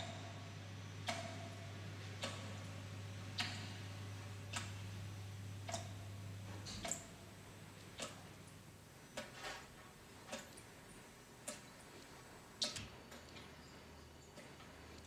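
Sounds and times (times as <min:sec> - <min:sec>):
clock ticking: 0:01.0 - 0:02.6, 0:07.9 - 0:08.3.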